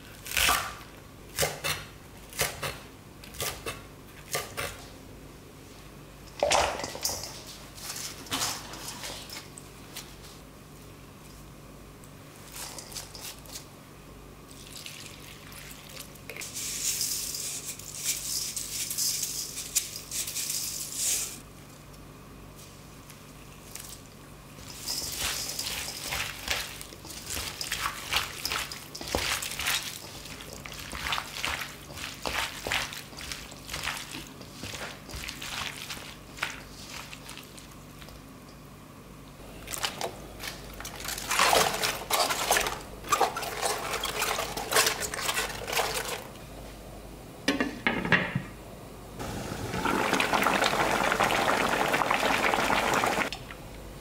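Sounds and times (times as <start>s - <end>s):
wet squishing and rustling: 23.6s - 38.3s, 39.5s - 46.4s.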